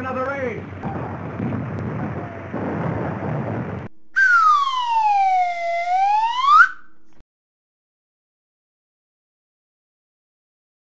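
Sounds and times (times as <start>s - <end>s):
noisy rumble: 0.0s - 7.2s
gliding whistle-like tone: 4.1s - 7.0s.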